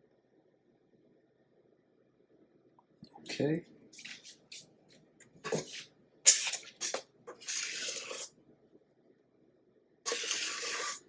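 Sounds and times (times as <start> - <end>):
spatula scraping metal bowl: 6.5 - 8.3, 10.1 - 11.0.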